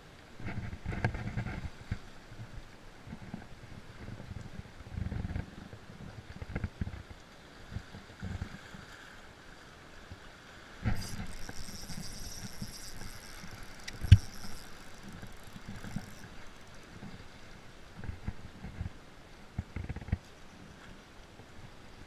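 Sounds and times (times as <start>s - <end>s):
knocks from handling fishing reel: 10.8s - 17.2s.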